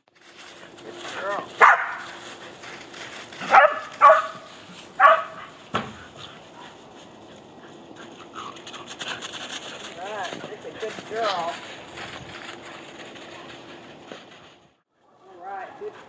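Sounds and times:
dog barking: 1.6s - 2.2s, 3.4s - 5.5s.

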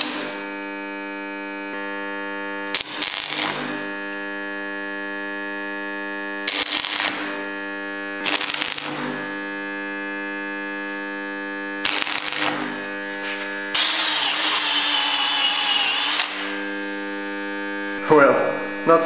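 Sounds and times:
crackling welding arc: 0.0s - 0.5s, 2.7s - 4.4s, 6.4s - 9.4s, 11.8s - 17.1s
steady hum: 0.0s - 19.0s.

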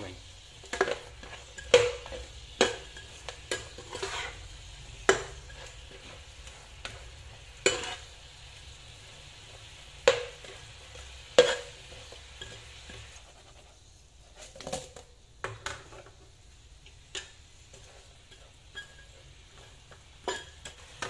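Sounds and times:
glaze sizzling: 0.0s - 21.0s.

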